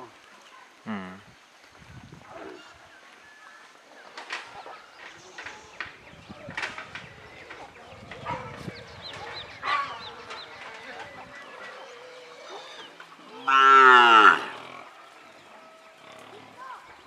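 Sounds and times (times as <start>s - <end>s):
cow mooing: 13.4s - 14.9s.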